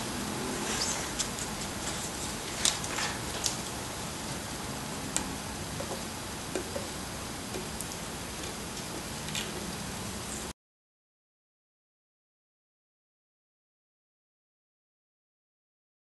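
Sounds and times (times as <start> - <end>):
steady background hiss: 0.0 - 10.5
tape being peeled: 0.6 - 3.8.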